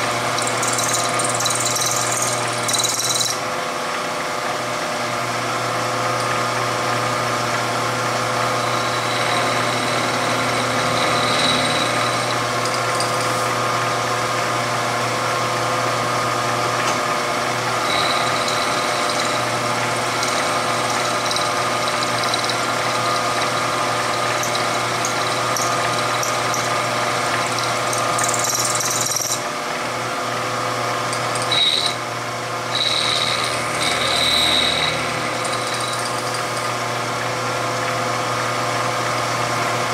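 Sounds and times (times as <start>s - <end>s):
milling machine spindle running: 0.0s - 39.9s
thin high cutting tone: 8.5s - 13.6s, 17.8s - 23.7s, 31.1s - 32.0s, 32.7s - 36.8s.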